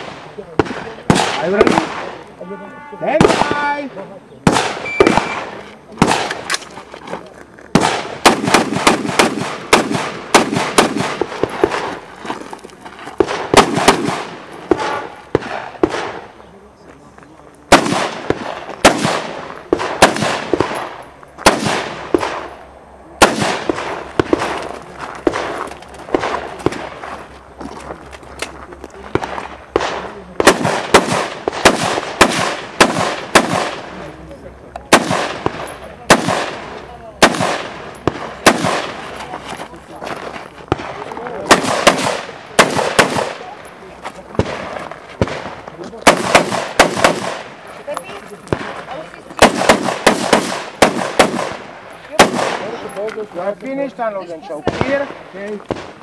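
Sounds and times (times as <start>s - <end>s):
rifle shots: 0.0s - 2.2s, 3.2s - 3.7s, 4.4s - 6.6s, 7.7s - 12.0s, 13.2s - 16.3s, 17.7s - 22.5s, 23.2s - 27.0s, 29.1s - 34.0s, 34.9s - 39.1s, 40.7s - 43.5s, 44.3s - 47.6s, 48.5s - 53.0s.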